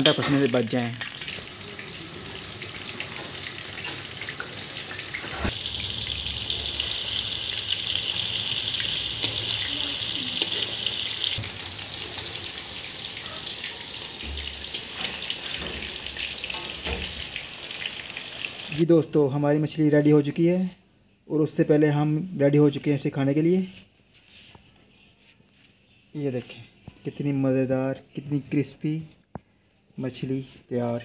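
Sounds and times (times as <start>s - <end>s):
fish deep-frying in oil: 0.0s - 18.9s.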